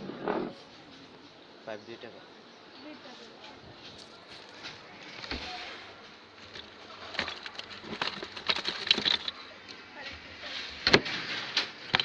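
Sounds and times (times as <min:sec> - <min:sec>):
faint background voices: 0:00.0 - 0:07.2.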